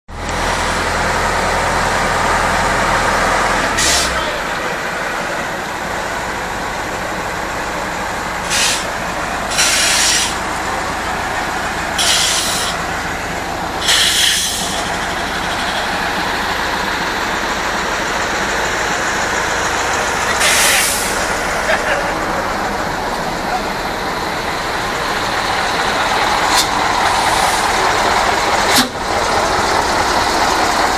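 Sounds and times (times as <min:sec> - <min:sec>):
heavy truck diesel engines: 0:00.1 - 0:30.9
air brake hisses: 0:03.8 - 0:04.3, 0:08.4 - 0:10.4, 0:12.0 - 0:12.8, 0:13.8 - 0:15.0, 0:20.4 - 0:21.3.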